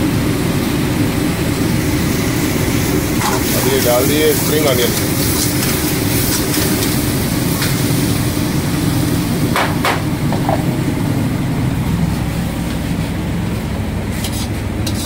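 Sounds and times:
gas burner roaring: 0.0s - 15.0s
ladle scraping wok: 3.2s - 8.0s, 14.0s - 15.0s.

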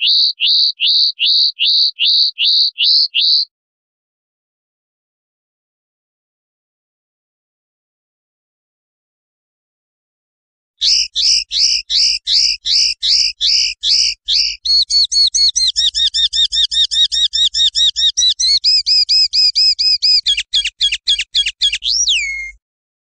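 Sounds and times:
linnet singing: 0.0s - 3.5s, 10.8s - 22.6s.

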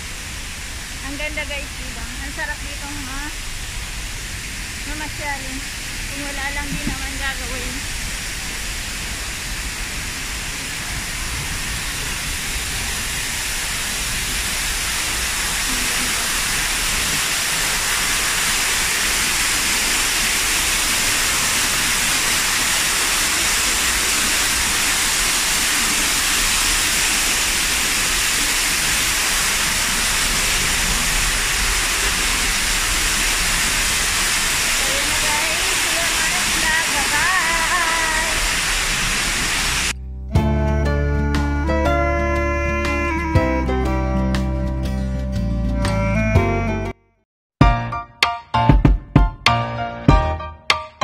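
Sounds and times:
waterfall splashing on rock: 0.0s - 40.0s.

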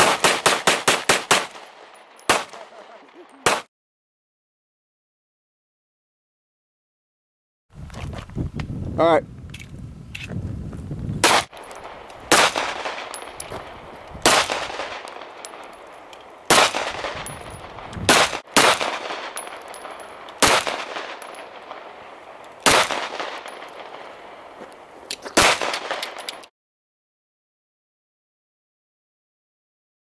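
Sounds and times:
pistol shots with echo: 0.0s - 3.7s, 11.2s - 24.4s, 25.4s - 26.4s.

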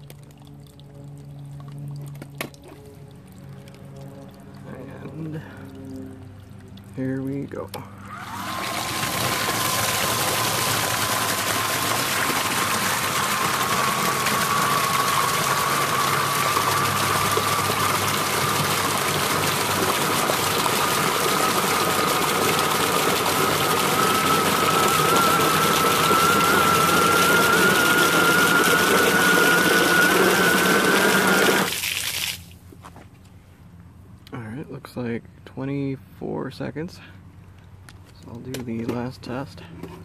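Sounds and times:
electric motor whine: 7.7s - 31.7s
water spray hissing and splashing: 31.7s - 32.6s.

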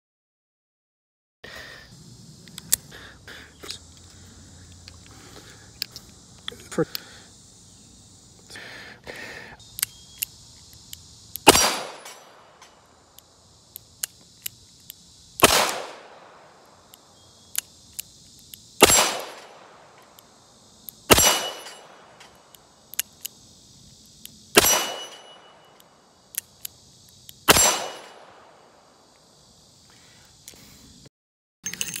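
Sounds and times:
sharp clicks: 9.7s - 16.1s, 16.8s - 23.4s, 24.0s - 28.3s.

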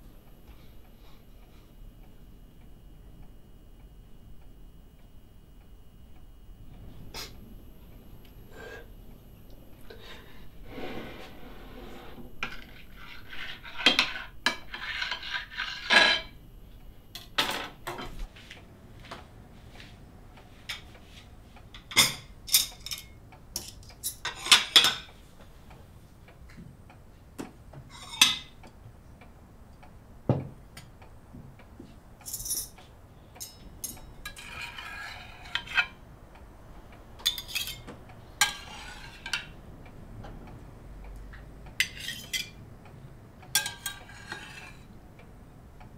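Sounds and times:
fork scraping on glass plate: 10.7s - 16.3s, 34.2s - 36.0s, 38.4s - 39.5s, 41.8s - 42.5s, 43.6s - 44.9s
dishes and cutlery clinking: 12.4s - 16.3s, 37.2s - 39.5s, 41.8s - 42.6s, 43.6s - 44.8s.

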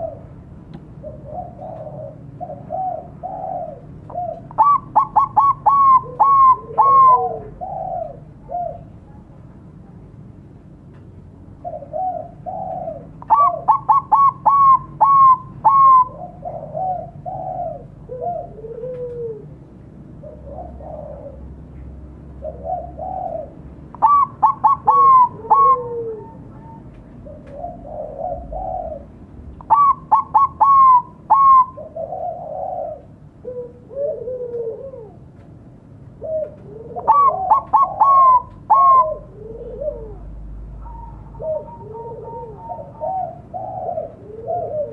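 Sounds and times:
dove cooing: 0.0s - 9.3s, 11.5s - 35.4s, 36.0s - 44.9s.

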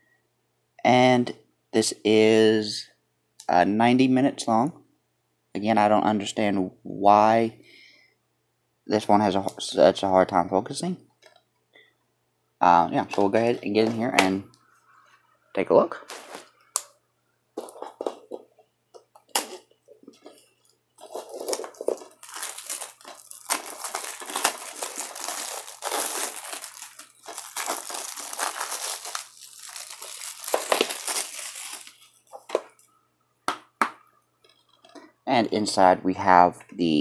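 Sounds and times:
plastic wrap crinkling: 15.9s - 17.0s, 17.6s - 18.6s, 19.3s - 32.9s
plastic wrap tearing: 21.0s - 32.8s.

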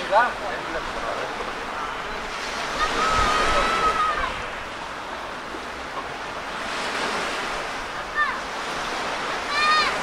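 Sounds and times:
waves washing onto shore: 0.0s - 10.0s
thin wavering whistle-like tone: 1.8s - 4.4s.

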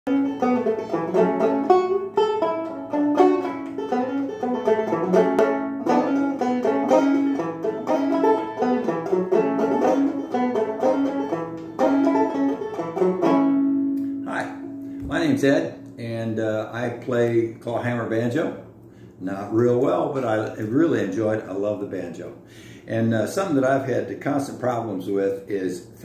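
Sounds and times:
banjo plucked notes: 0.1s - 15.8s.

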